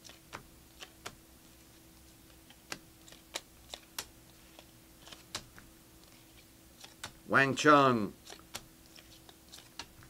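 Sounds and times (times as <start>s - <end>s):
trading cards clicking: 2.4s - 5.6s, 6.4s - 7.2s, 8.2s - 10.0s.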